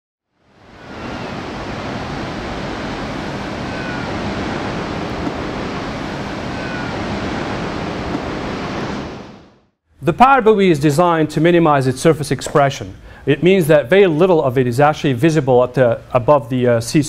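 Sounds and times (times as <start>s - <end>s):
ocean waves washing: 0.4s - 9.6s.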